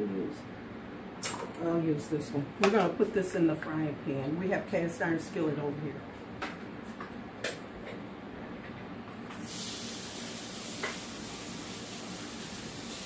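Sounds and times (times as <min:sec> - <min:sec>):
meat sizzling in a skillet: 0:09.4 - 0:13.0.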